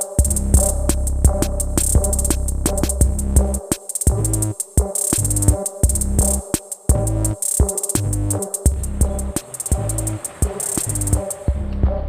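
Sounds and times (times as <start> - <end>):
music with percussion and bass: 0.0 - 12.0.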